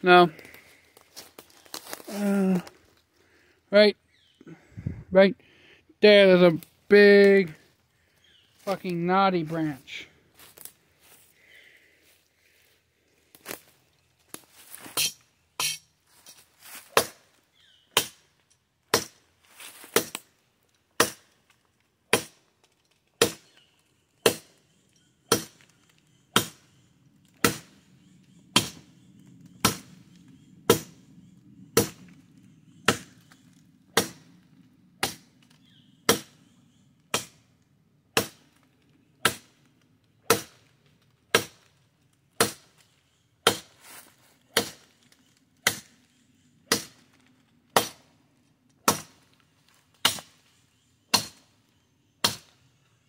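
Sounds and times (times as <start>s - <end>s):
sword chopping into branch: 14.9s - 15.8s.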